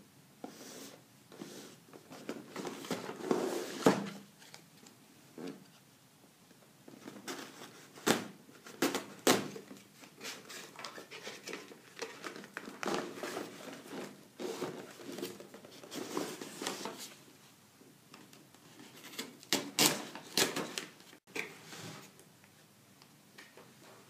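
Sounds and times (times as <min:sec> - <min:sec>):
cardboard scraping and rustling: 0:00.5 - 0:04.3, 0:10.1 - 0:17.2.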